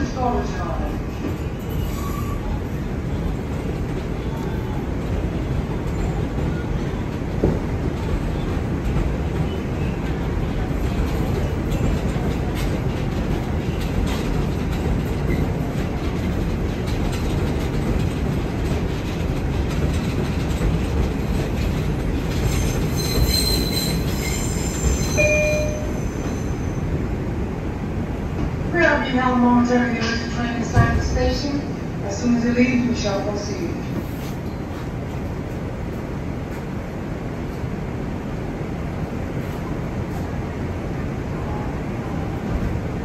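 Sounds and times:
train wheels rumbling on rail: 0.0s - 43.0s
high-pitched wheel squeals: 1.7s - 2.6s, 22.5s - 26.8s.

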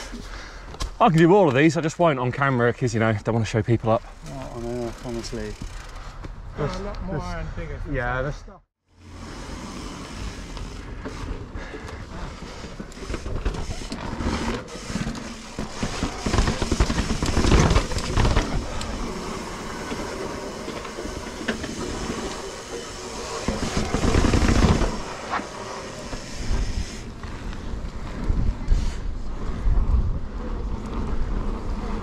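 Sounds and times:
bike tyres rolling on dirt: 2.4s - 6.4s, 9.0s - 32.0s
wind buffeting microphone: 26.4s - 32.0s.

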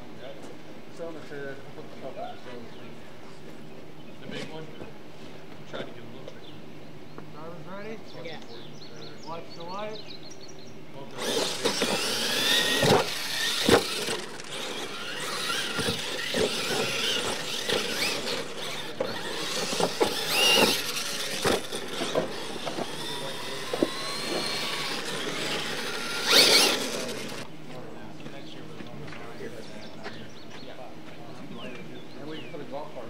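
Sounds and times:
electric motors whining: 11.0s - 27.6s
sharp knocks of landing trucks: 11.5s - 27.4s.

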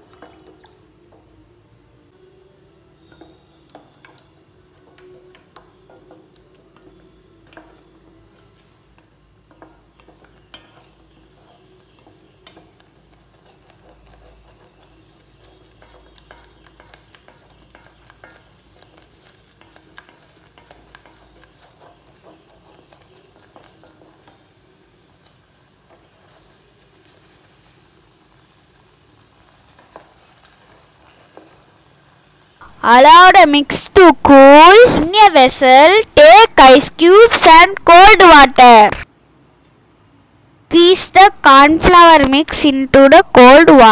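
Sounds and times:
wooden spatula scraping saucepan: 5.2s - 24.4s.

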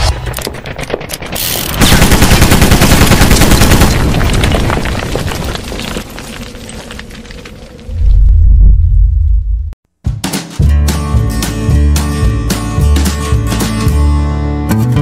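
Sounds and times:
machine-gun fire: 0.0s - 4.5s.

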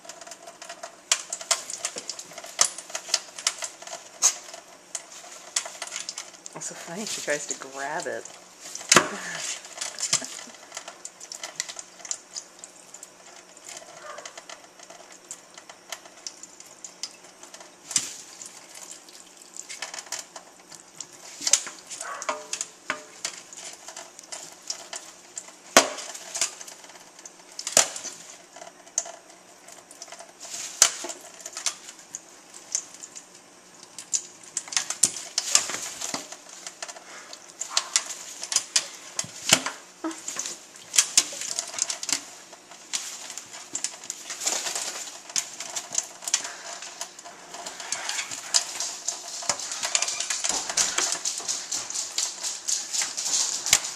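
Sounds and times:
trickle of running water: 0.0s - 53.9s
bird splashing: 21.3s - 23.8s.

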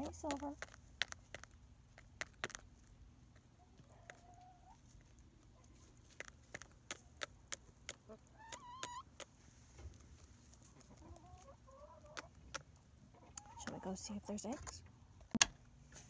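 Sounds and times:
hens clucking: 3.4s - 9.4s, 10.6s - 14.8s.

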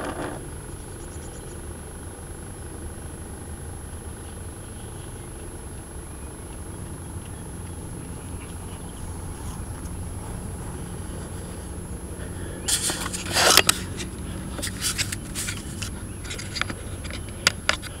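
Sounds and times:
camera handling scrapes and clicks: 0.0s - 0.4s, 12.7s - 18.0s
low rumble: 6.1s - 17.3s.

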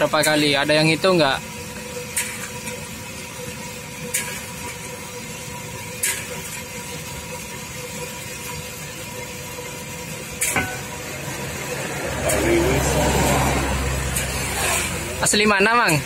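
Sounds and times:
gas stove flame rushing: 0.0s - 16.0s
wire strainer tapping metal wok: 6.0s - 6.7s, 10.3s - 11.2s.

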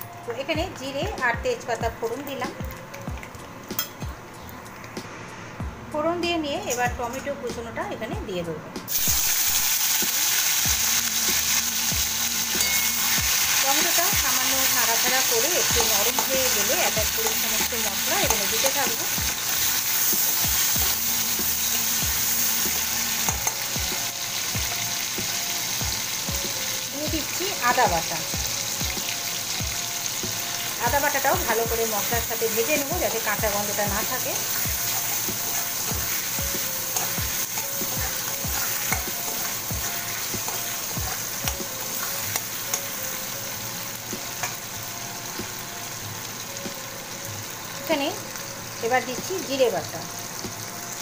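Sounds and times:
tomato sizzling in hot oil: 0.0s - 4.9s, 8.9s - 51.0s
metal spatula stirring in pan: 34.1s - 43.0s.

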